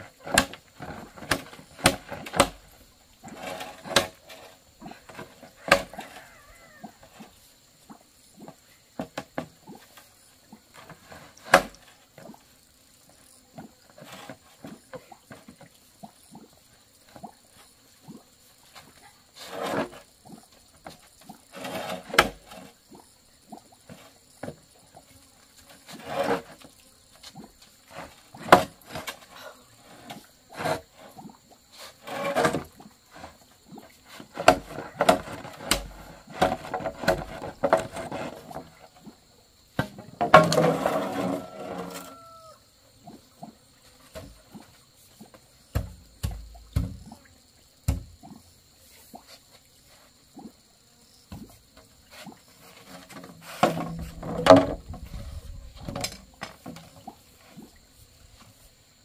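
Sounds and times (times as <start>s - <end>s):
bamboo poles scraping on concrete: 3.2s - 6.3s, 14.0s - 14.8s, 18.6s - 20.1s, 20.8s - 22.8s, 25.6s - 26.7s, 27.8s - 33.4s, 34.0s - 39.0s, 39.8s - 42.4s, 52.1s - 56.8s.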